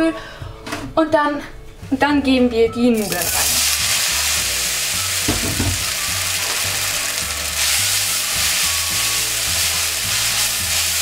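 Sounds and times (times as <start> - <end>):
noodles sizzling in hot oil: 3.0 - 11.0.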